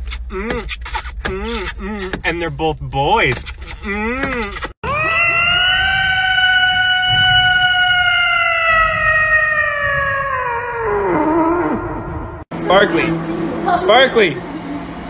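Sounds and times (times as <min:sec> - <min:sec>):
cat meowing: 0:04.9 - 0:11.6.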